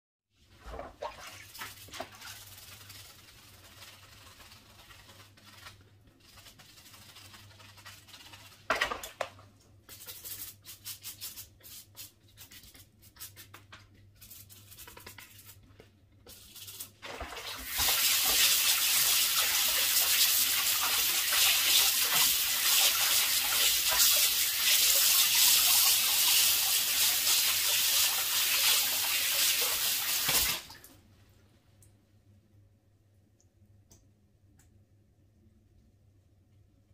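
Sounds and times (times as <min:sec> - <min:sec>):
brush scrubbing in soapy water: 0:00.4 - 0:08.7, 0:09.8 - 0:30.6.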